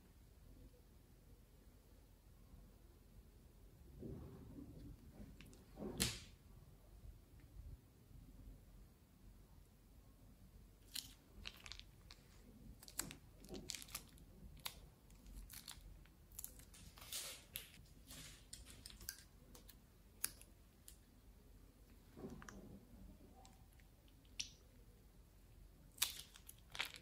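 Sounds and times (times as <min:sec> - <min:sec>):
plastic bag crunching and crinkling: 0:10.8 - 0:19.2, 0:26.0 - 0:27.0.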